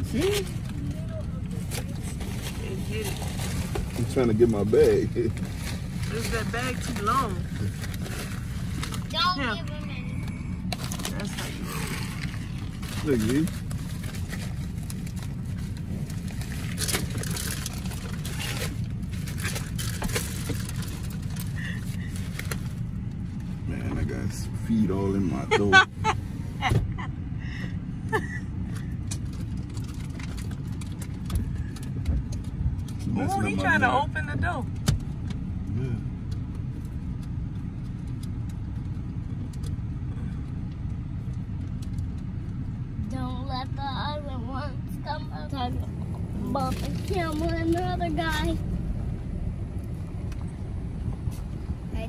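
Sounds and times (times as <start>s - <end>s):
vehicle low rumble: 0.0s - 52.0s
paper bag crinkling and rustling: 10.8s - 21.5s.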